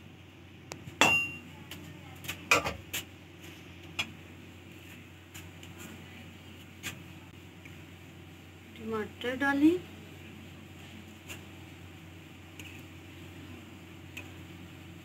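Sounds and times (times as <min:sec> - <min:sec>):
metal spoon clanging on pot: 0:01.0 - 0:01.4.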